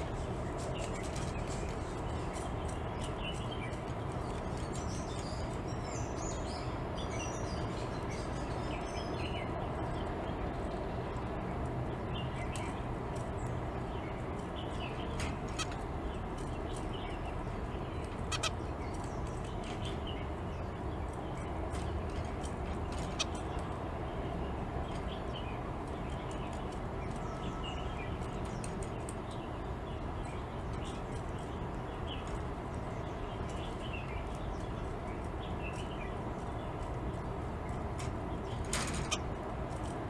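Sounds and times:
finches chirping and calling: 0:00.0 - 0:11.2, 0:11.9 - 0:39.4.

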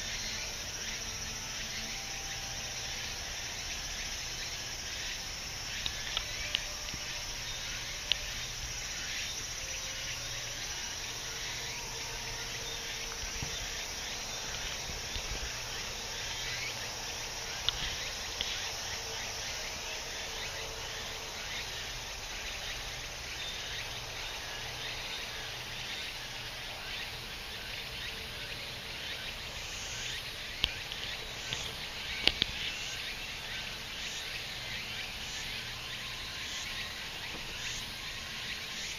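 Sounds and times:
insects chorus: 0:00.0 - 0:38.9
mosquito whine: 0:00.0 - 0:38.9
sharp clicks: 0:30.6 - 0:32.6.

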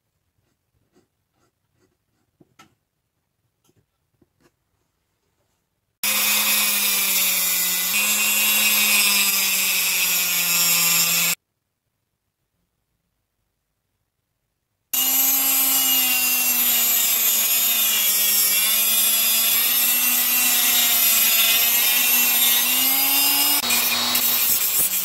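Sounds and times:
rotary tool cutting metal: 0:06.0 - 0:11.4, 0:15.0 - 0:25.0.

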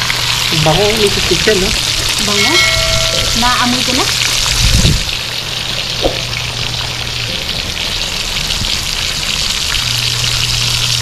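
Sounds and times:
oil popping: 0:00.0 - 0:06.5
fish frying in hot oil: 0:00.0 - 0:11.0.

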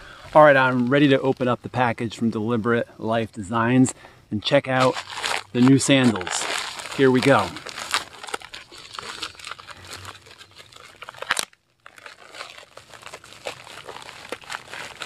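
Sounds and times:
plastic bag rustling and crinkling: 0:00.0 - 0:01.5, 0:04.8 - 0:15.0
plastic bag ripping: 0:04.8 - 0:15.0.

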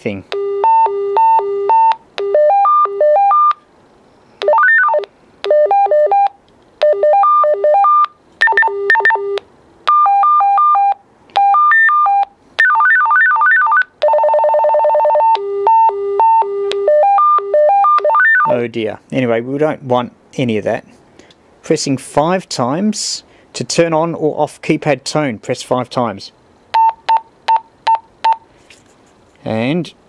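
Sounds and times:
walkie-talkie beeping call tones: 0:04.4 - 0:18.5.

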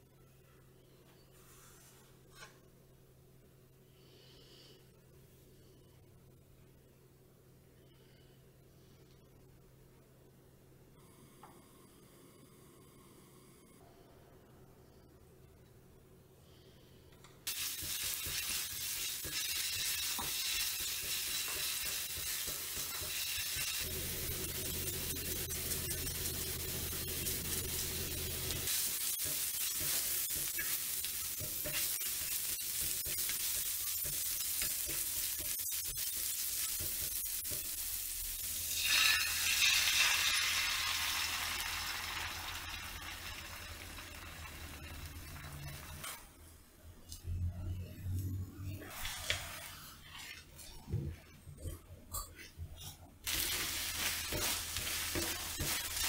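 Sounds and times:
food sizzling in a pan: 0:17.5 - 0:46.2, 0:53.2 - 0:56.0
egg poured into hot pan: 0:38.4 - 0:46.0
spatula stirring: 0:48.8 - 0:56.0.

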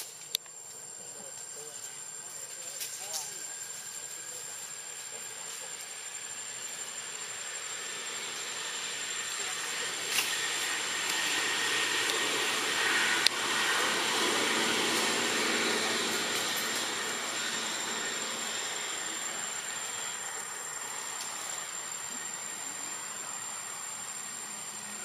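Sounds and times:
high-pitched whine: 0:01.5 - 0:25.0
broad rushing noise: 0:07.8 - 0:22.1.

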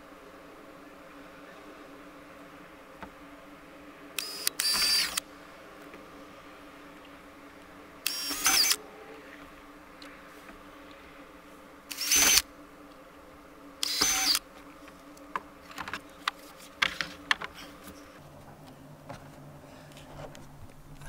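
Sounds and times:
cordless drill boring plastic: 0:04.2 - 0:05.2, 0:08.0 - 0:08.8, 0:11.9 - 0:12.5, 0:13.8 - 0:14.5.

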